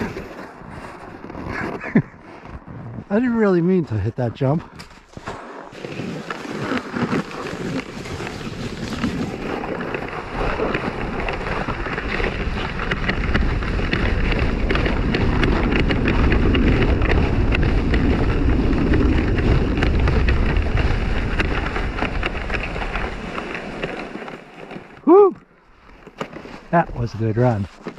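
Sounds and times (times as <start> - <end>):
sled scraping over snow: 0.0 - 27.9
wind buffeting microphone: 8.4 - 23.1.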